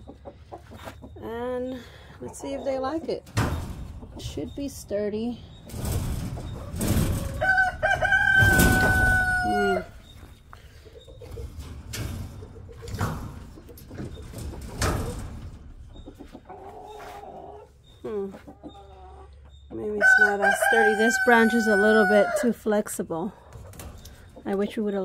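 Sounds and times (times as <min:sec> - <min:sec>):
chicken clucking: 0:00.0 - 0:25.0
chicken calling: 0:06.3 - 0:11.4.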